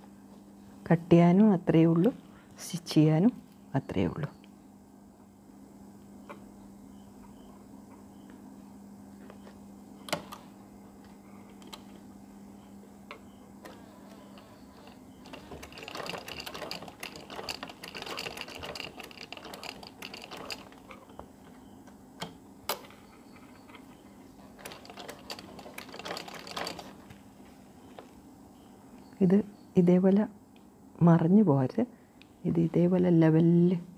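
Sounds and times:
sewing machine needle clatter: 14.4s - 20.9s, 24.6s - 27.0s.

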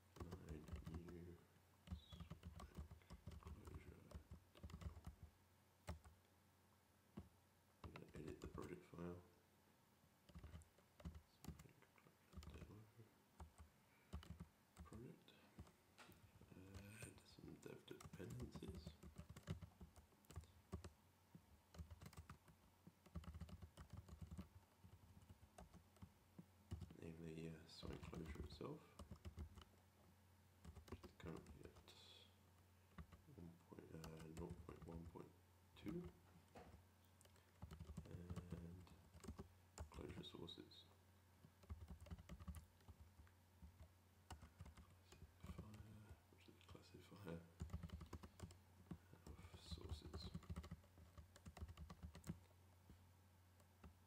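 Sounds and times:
keyboard typing: 0.0s - 6.2s, 7.2s - 8.8s, 10.2s - 11.7s, 12.3s - 12.7s, 13.4s - 15.8s, 16.5s - 21.0s, 21.7s - 27.0s, 27.8s - 29.7s, 30.6s - 31.9s, 32.9s - 33.3s, 33.9s - 35.2s, 35.8s - 40.4s, 41.4s - 53.0s.

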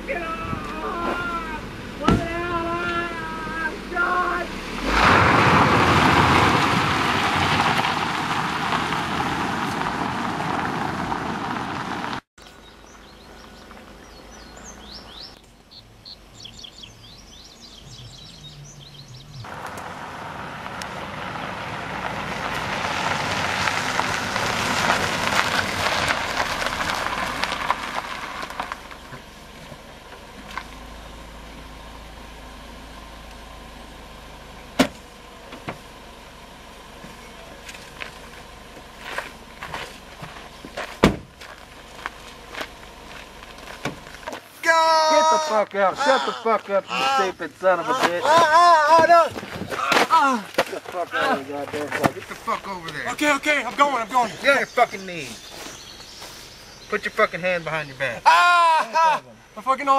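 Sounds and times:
car driving on gravel: 0.0s - 59.9s
car engine idling: 0.0s - 59.9s
birds chirping: 12.4s - 19.8s, 28.4s - 41.0s, 41.6s - 59.9s.

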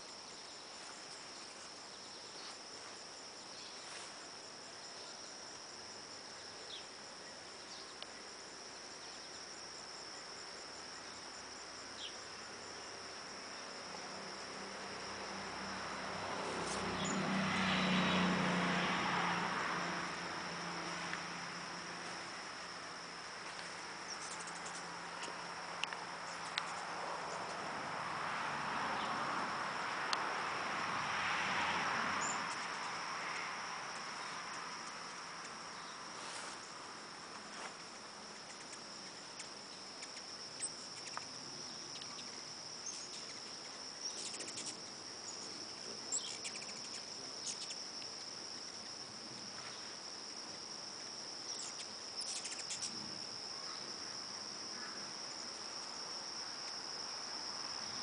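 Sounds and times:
faint ticks and chirps: 0.0s - 18.2s, 20.4s - 27.7s, 32.2s - 58.0s
insect chorus trilling: 0.0s - 58.0s
rustling noise: 36.1s - 38.0s.

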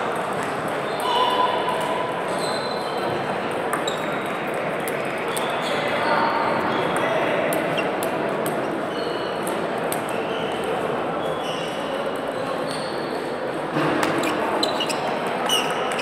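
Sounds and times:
murmur of voices: 0.0s - 16.0s
table tennis balls clicking: 3.4s - 5.5s, 14.0s - 16.0s.

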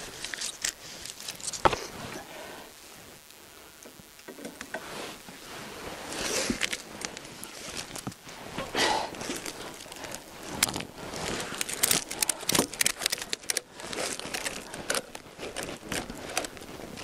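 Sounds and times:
snow crunching: 0.0s - 3.7s, 4.8s - 17.0s
strap webbing rustling: 4.8s - 17.0s.

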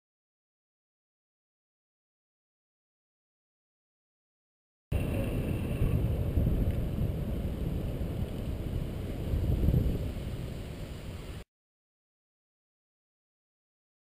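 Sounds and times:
wind buffeting microphone: 4.9s - 11.4s.

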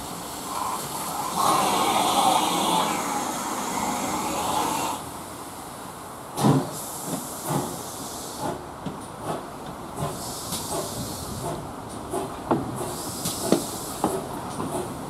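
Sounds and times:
steam hiss: 0.0s - 5.6s, 6.3s - 15.0s
steam locomotive exhaust beats: 6.4s - 15.0s.

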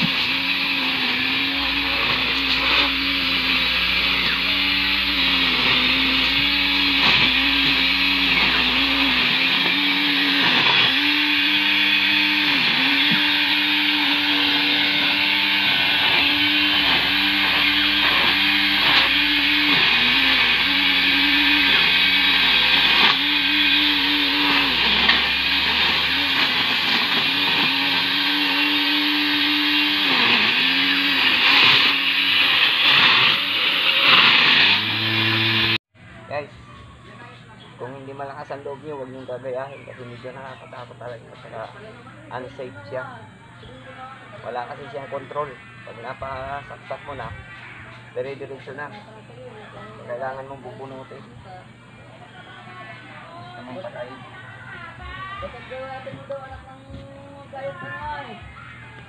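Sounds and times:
grass trimmer whining: 0.0s - 35.8s.

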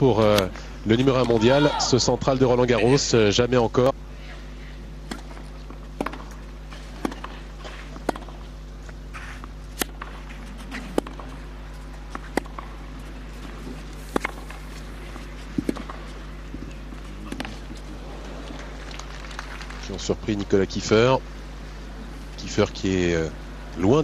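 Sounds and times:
low hum: 0.0s - 24.0s
tennis ball hits: 5.0s - 8.5s, 9.1s - 18.6s.

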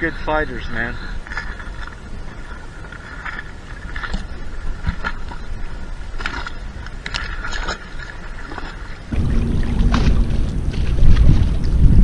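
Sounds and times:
water splashing against kayak: 0.6s - 12.0s
wind rumbling on microphone: 1.0s - 12.0s.

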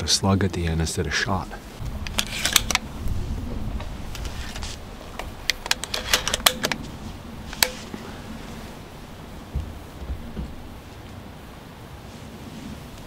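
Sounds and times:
shotgun loading clicks: 2.0s - 2.8s, 5.4s - 6.9s, 7.5s - 7.9s.

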